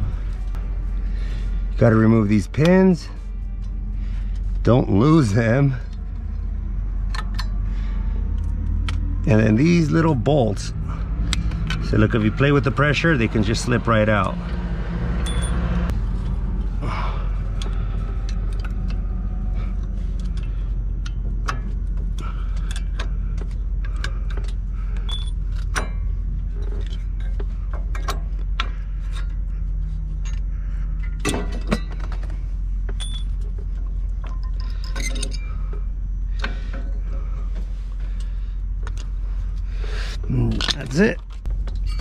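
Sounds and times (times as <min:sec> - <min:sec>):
steady low rumble: 0:00.0 - 0:42.0
metal clinking and clacking: 0:20.2 - 0:29.4, 0:30.2 - 0:35.8, 0:40.5 - 0:42.0.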